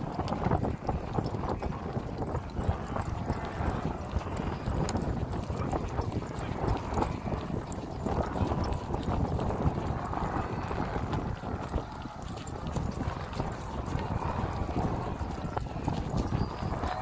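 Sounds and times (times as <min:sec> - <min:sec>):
horse hoofbeats on grass: 0:00.0 - 0:17.0.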